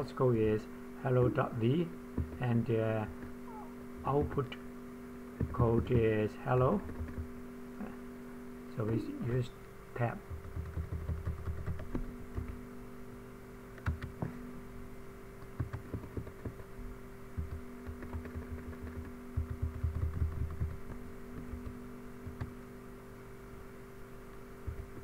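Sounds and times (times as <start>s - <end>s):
low electrical hum: 0.0s - 25.0s
computer keyboard keystrokes: 6.8s - 7.3s, 10.3s - 12.6s, 13.8s - 14.2s, 15.4s - 16.7s, 17.4s - 22.5s.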